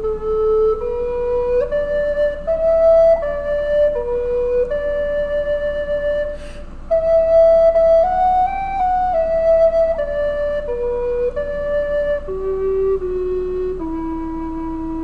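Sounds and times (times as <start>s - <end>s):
solo flute melody: 0.0s - 15.0s
player's breath: 6.3s - 6.9s.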